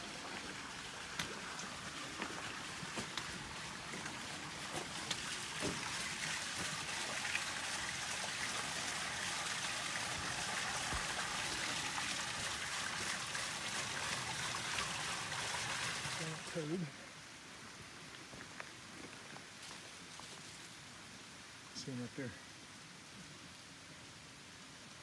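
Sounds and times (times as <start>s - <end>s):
water splashing on water wheel: 0.0s - 16.8s.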